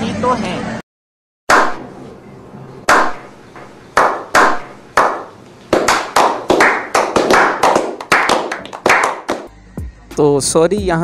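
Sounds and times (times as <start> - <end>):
people clapping slowly: 4.0 - 9.5.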